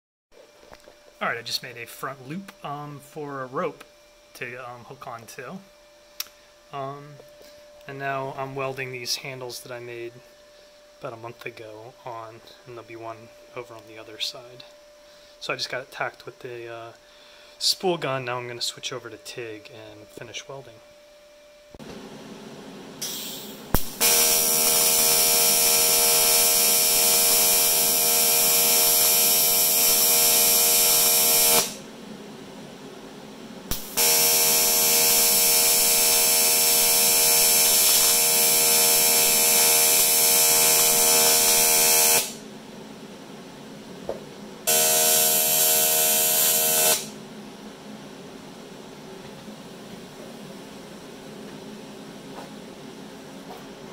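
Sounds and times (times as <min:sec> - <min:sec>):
sharp crack of arc striking: 0:23.0 - 0:28.1, 0:29.0 - 0:31.8, 0:33.7 - 0:42.4
welding arc buzzing: 0:23.0 - 0:31.9, 0:33.7 - 0:42.5, 0:44.6 - 0:47.2.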